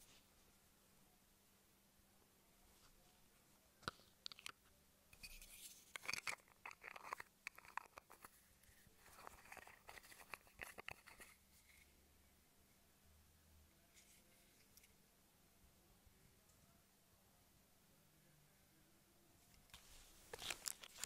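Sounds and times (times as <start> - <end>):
packaging crinkling rustles: 19.8 - 21.0.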